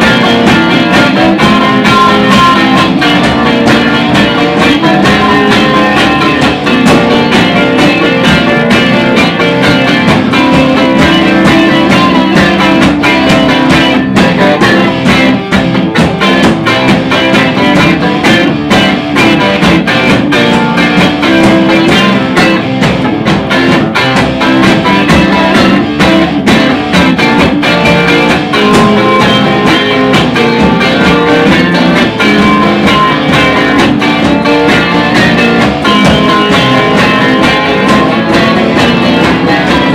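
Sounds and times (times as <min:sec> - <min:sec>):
soul-blues instrumental band: 0:00.0 - 0:39.9.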